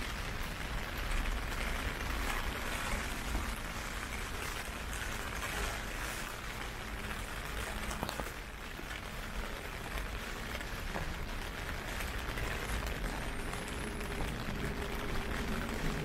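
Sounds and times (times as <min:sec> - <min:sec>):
faint ticks of raindrops: 0:00.0 - 0:16.0
heavy rain hissing: 0:09.0 - 0:16.0.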